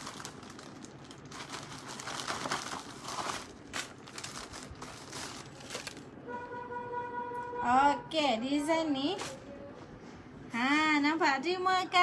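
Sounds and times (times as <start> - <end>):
plastic bag crinkling: 0.0 - 6.2.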